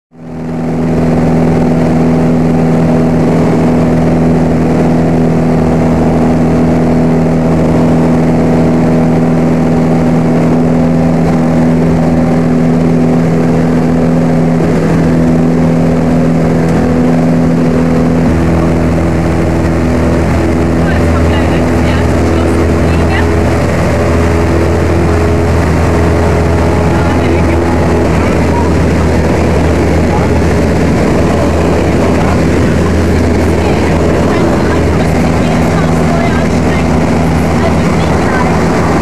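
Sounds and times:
airplane engine droning: 0.1s - 39.0s.

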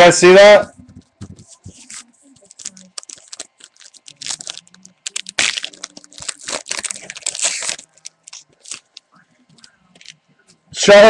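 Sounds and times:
foil wrapper crinkling and tearing: 1.4s - 10.1s.

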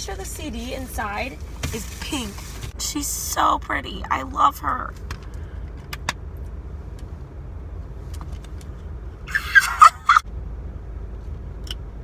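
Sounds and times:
car interior rumble: 0.0s - 12.0s
woman squealing excitedly: 9.3s - 10.2s.

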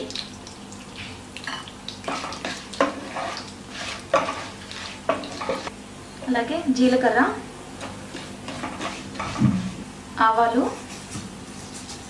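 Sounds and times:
hot oil sizzling: 0.0s - 5.8s, 7.9s - 9.9s
wooden spatula scraping pan: 2.1s - 5.7s, 7.8s - 9.8s.

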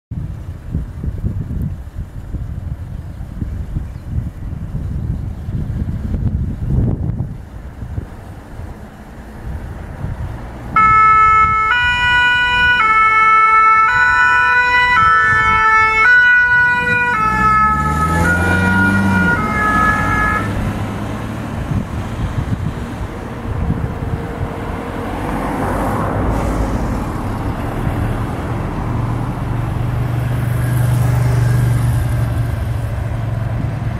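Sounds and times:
low engine hum: 0.1s - 33.9s
road traffic noise: 0.1s - 33.9s
vehicle engine revving: 7.9s - 33.9s
two-tone siren: 10.8s - 20.6s.

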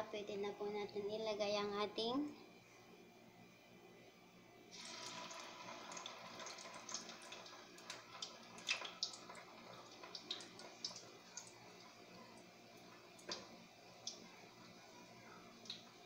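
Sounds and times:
food deep-frying in oil: 4.7s - 16.0s.

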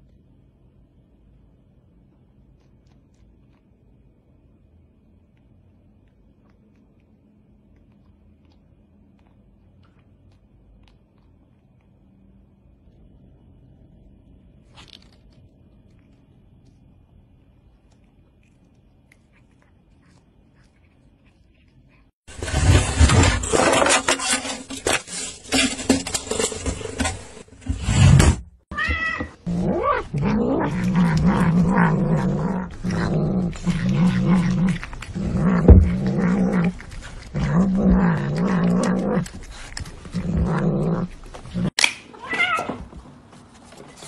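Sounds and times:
cat growl-meows: 28.7s - 42.8s.

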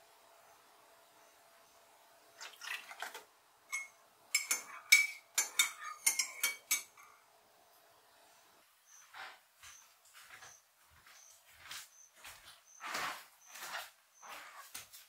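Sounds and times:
dishes and cutlery clattering: 3.7s - 7.1s.

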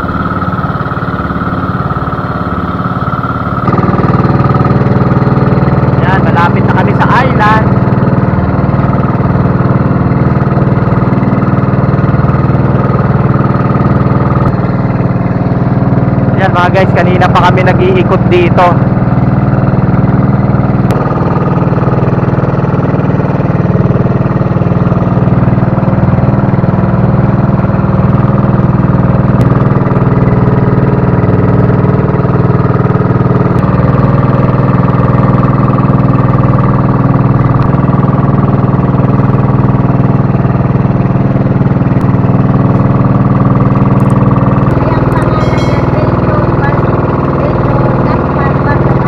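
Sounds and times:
boat engine droning: 0.0s - 49.0s.

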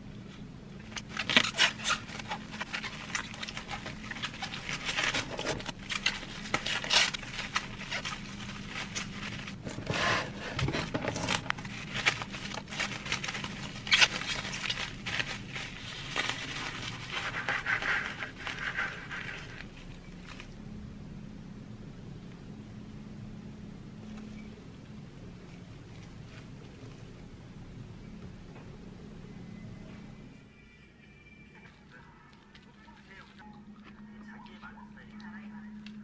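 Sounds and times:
cling wrap crinkling: 0.2s - 20.6s, 25.2s - 27.3s, 31.5s - 36.0s
knife crunching through lettuce: 0.9s - 10.5s.

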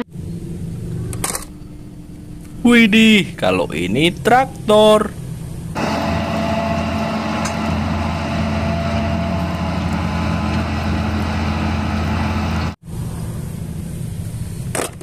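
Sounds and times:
tractor diesel engine under load: 5.7s - 12.8s.

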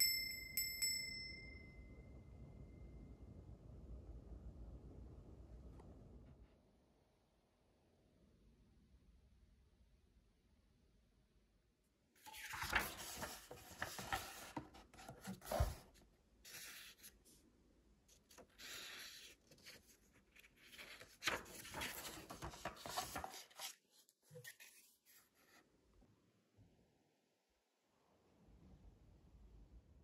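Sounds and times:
book pages rustling: 12.2s - 17.3s, 18.1s - 25.6s.

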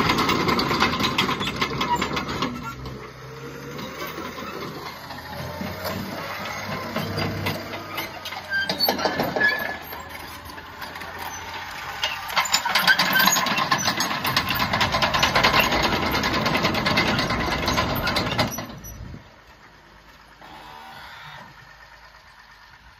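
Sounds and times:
steel tracks clattering: 0.0s - 3.1s, 4.0s - 19.4s
diesel engine running: 0.0s - 22.9s.

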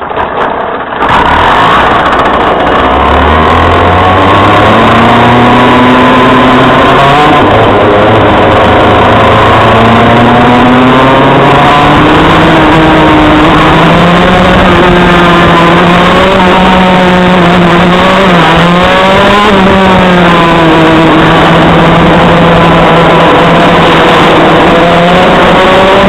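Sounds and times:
two-stroke kart engine running hard: 0.0s - 26.0s.

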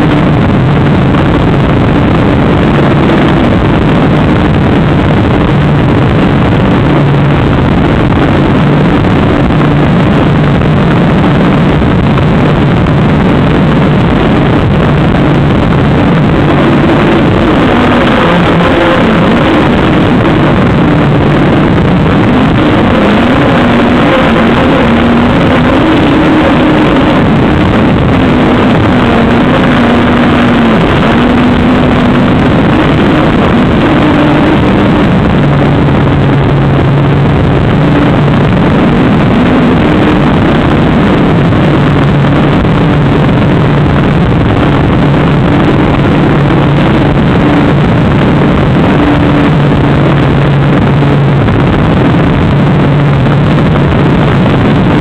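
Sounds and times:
rush of air: 0.0s - 55.0s
small aircraft propeller droning: 0.0s - 55.0s.

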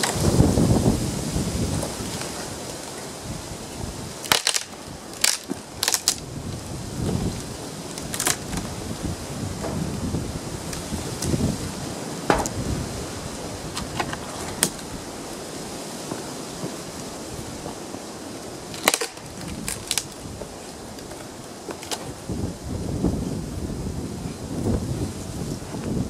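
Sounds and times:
dry branches snapping: 0.0s - 0.5s, 1.6s - 13.0s, 13.6s - 22.2s.

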